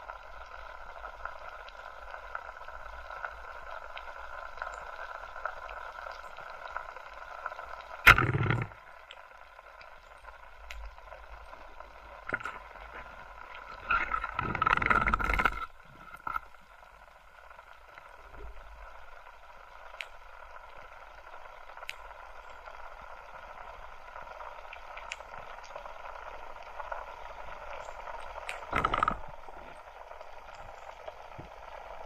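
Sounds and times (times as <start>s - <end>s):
steady hiss: 0.0s - 32.0s
faint clicks: 7.2s - 11.0s, 19.9s - 20.2s, 21.8s - 22.6s, 27.6s - 31.8s.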